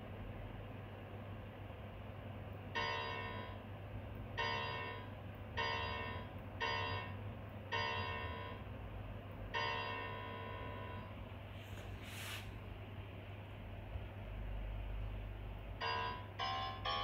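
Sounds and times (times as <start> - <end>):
synthesized bell-like note: 15.8 - 17.0.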